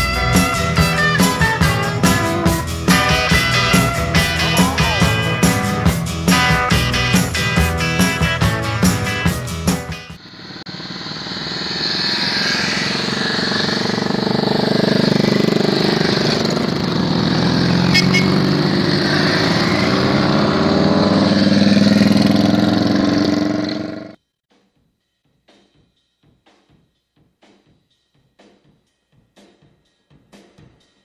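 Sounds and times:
motorcycles riding past: 10.3s - 24.2s.

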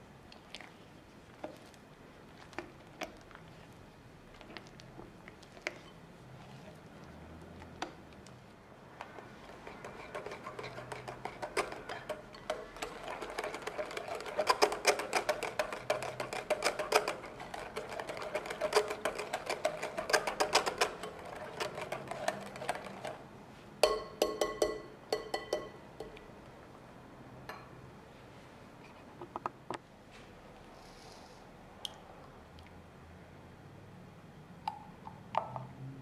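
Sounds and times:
whisk clicking in glass bowl: 9.1s - 23.2s
whisk knocking against bowl: 9.1s - 23.2s, 23.8s - 26.2s.

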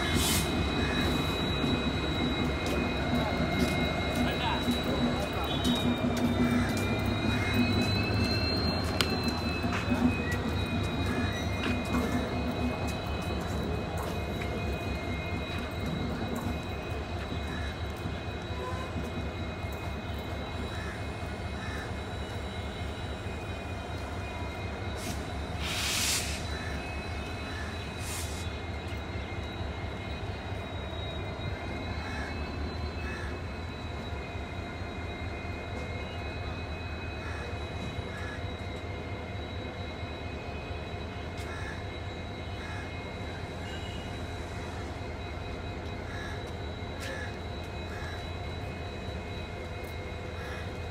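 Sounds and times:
diesel locomotive engine rumble: 0.0s - 50.9s
air hiss: 25.0s - 26.5s.

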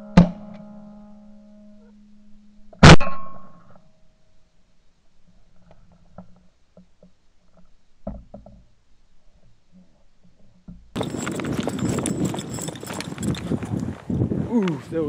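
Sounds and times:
footsteps crunching through stubble: 11.0s - 15.0s
wind rush on microphone: 11.0s - 15.0s.

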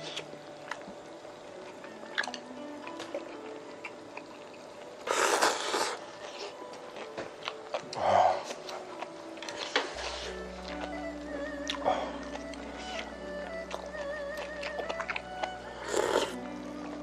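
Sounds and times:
light chewing: 1.6s - 17.0s
person slurping broth: 5.0s - 6.0s, 15.8s - 16.4s
breathy exhale: 11.8s - 12.2s.

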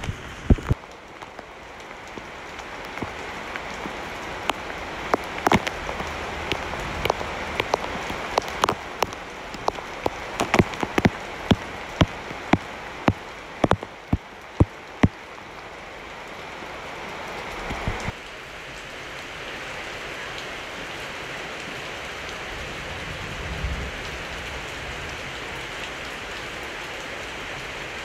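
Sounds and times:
large raindrops tapping: 0.0s - 16.5s, 17.4s - 18.2s
heavy rain hissing: 0.0s - 28.0s.

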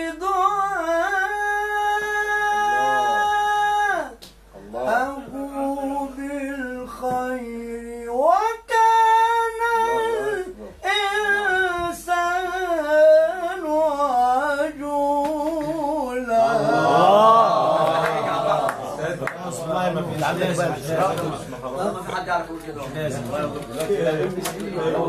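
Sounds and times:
man chanting melodically: 0.0s - 4.2s
burst of listeners' voices: 15.6s - 25.0s.

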